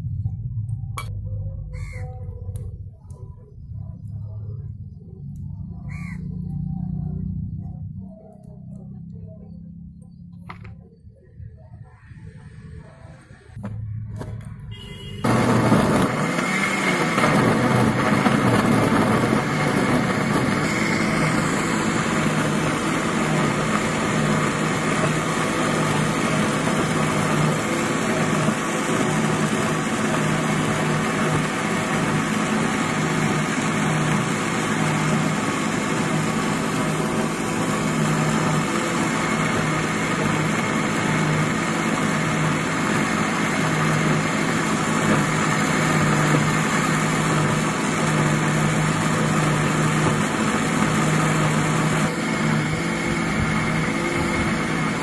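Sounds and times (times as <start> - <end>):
mixer grinder blades whirring: 15.2 - 55.0.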